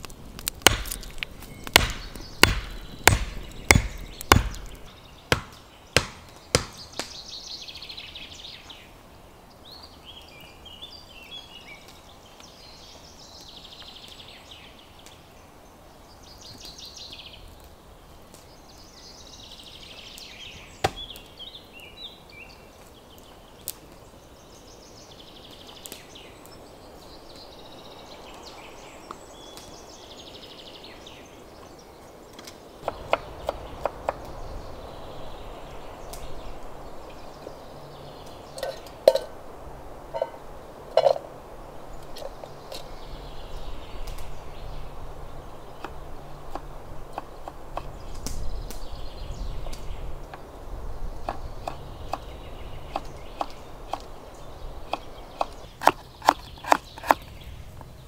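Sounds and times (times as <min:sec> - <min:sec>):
bird singing: 0:00.0 - 0:39.4, 0:40.0 - 0:58.0
axe chopping wood: 0:00.4 - 0:07.2, 0:20.8 - 0:21.2, 0:55.0 - 0:57.2.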